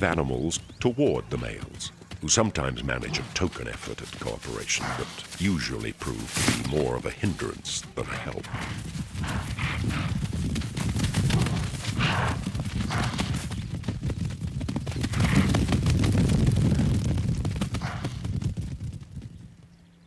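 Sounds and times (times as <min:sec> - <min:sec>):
animal calls: 0:00.0 - 0:10.2, 0:11.3 - 0:13.4
hooves drumming on dry ground: 0:00.0 - 0:20.0.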